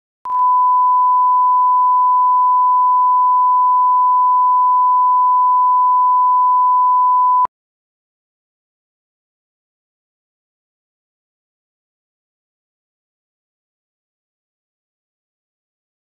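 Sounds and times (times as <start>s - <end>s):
steady sine tone: 0.3s - 7.5s.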